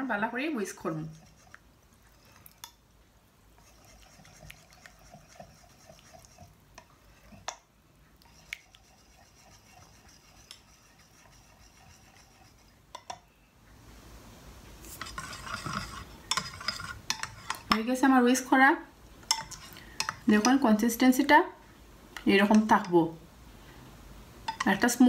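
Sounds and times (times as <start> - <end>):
whisk beating batter: 0.7 - 1.6, 3.6 - 7.6, 8.2 - 13.0, 14.8 - 17.8.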